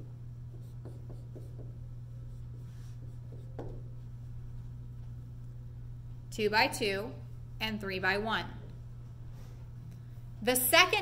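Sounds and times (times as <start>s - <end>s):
steady low hum: 0.0s - 11.0s
marker scratching on whiteboard: 0.5s - 4.1s.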